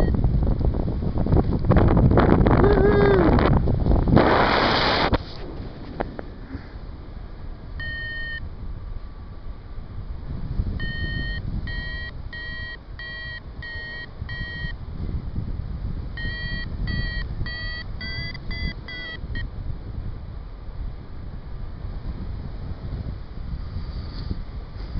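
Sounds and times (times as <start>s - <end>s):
variometer beeping: 0.0s - 0.2s, 7.8s - 8.5s, 10.8s - 14.8s, 16.1s - 19.5s
wind rumble on microphone: 0.0s - 24.9s.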